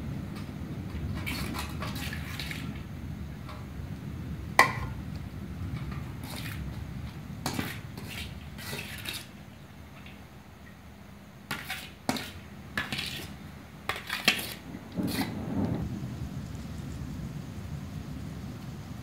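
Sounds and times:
low steady rumble: 2.7 - 7.5, 14.6 - 19.0
metal plate clinking on pot: 4.6 - 5.0.

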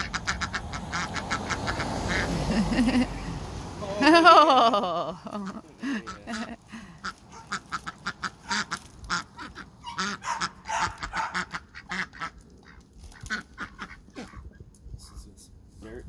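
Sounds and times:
ducks quacking: 0.0 - 3.2, 5.2 - 14.5.

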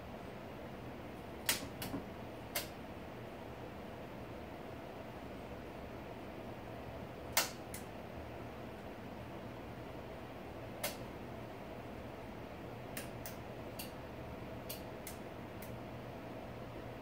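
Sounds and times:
steady low hum: 0.0 - 17.0
sharp switch clicks: 1.4 - 1.9, 2.5 - 2.8, 7.3 - 7.9, 10.8 - 11.1, 13.0 - 14.0.

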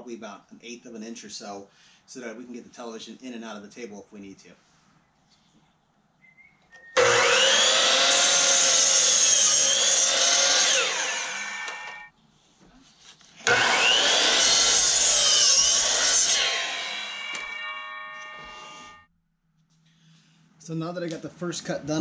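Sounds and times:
miter saw cutting wood: 7.0 - 12.1, 13.4 - 19.0
saw motor winding down: 7.0 - 12.1, 13.4 - 19.0.

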